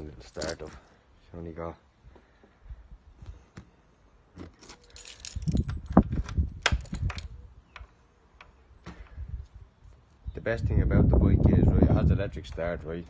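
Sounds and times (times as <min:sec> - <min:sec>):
keys jangling: 0:04.6 - 0:07.3.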